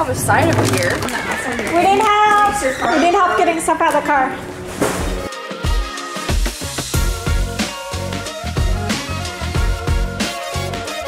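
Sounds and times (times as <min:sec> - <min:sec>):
steady drum beat: 0:05.1 - 0:11.0.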